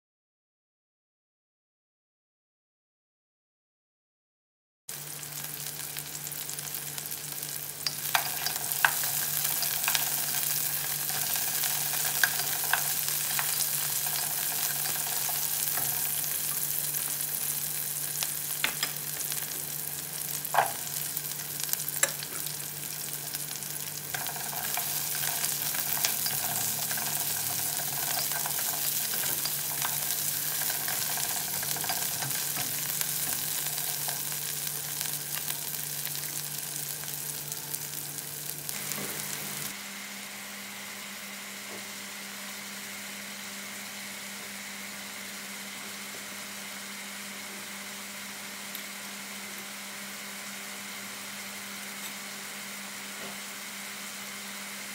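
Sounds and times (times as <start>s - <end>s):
food sizzling in hot oil: 4.9s - 39.8s.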